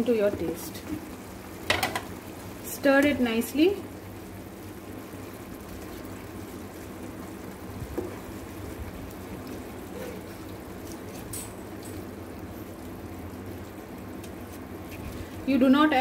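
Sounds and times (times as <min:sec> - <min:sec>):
gravy bubbling in a pan: 0:00.0 - 0:16.0
spoon knocking against a pan: 0:01.7 - 0:02.1.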